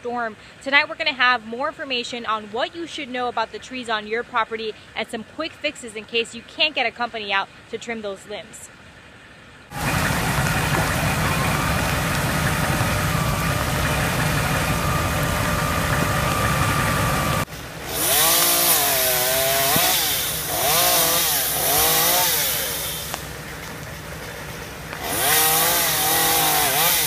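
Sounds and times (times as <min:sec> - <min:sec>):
chainsaw revving: 0:09.7 - 0:27.0.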